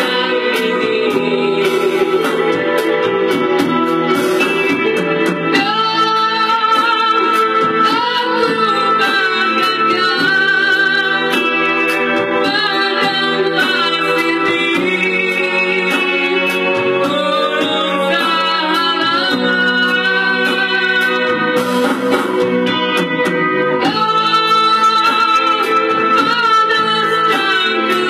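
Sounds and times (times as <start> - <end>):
man singing into microphone: 0.0 - 2.8, 5.6 - 21.8, 23.8 - 28.0
electric guitar: 0.0 - 28.0
keyboard: 0.0 - 28.0.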